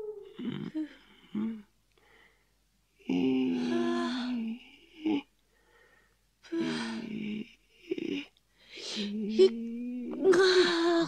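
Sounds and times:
short breath: 0:02.0 - 0:02.5, 0:05.5 - 0:06.8.

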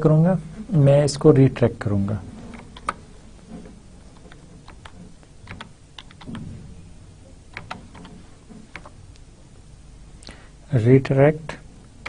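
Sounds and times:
keyboard key clicks: 0:04.2 - 0:06.4.

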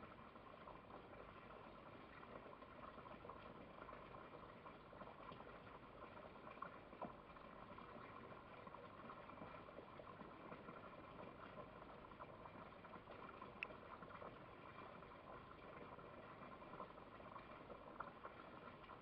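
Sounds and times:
soft ticks: 0:13.5 - 0:13.8.

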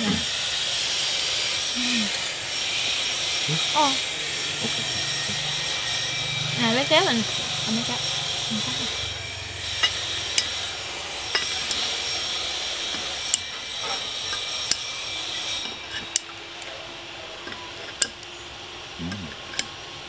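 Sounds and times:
steady hiss: 0:00.0 - 0:06.1
chopsticks clinking on ceramic plates: 0:09.8 - 0:10.6.

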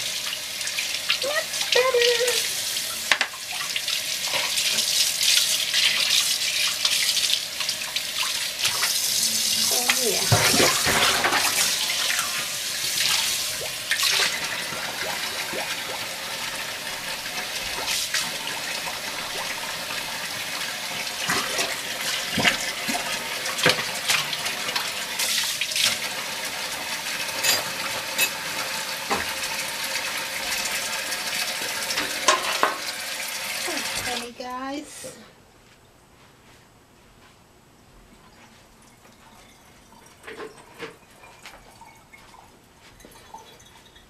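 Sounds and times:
tap running into sink: 0:29.0 - 0:29.4, 0:31.9 - 0:33.0.

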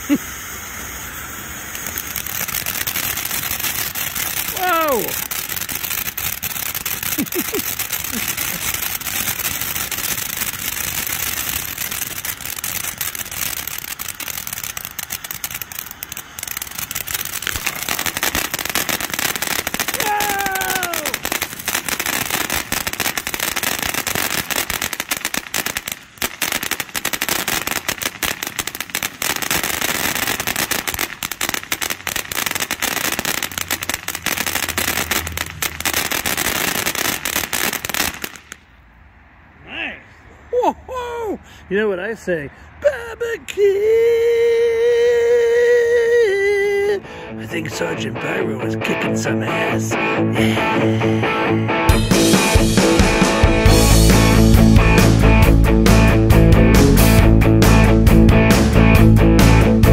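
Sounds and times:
firework sparks hissing: 0:00.0 - 0:38.8, 0:51.9 - 0:55.1
firework crackling: 0:00.0 - 0:39.2, 0:41.2 - 0:59.9.

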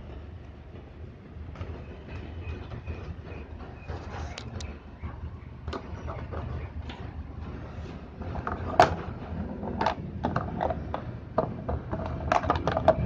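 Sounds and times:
low steady rumble: 0:00.0 - 0:13.0
plastic clicks and knocks: 0:08.3 - 0:13.0.

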